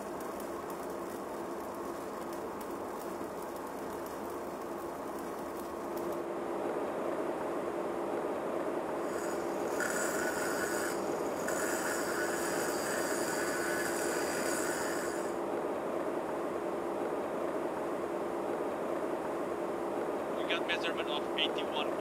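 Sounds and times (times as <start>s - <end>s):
welding arc hissing and whining: 0.0s - 6.2s, 9.0s - 15.4s
machinery hum and air hiss: 0.0s - 22.0s.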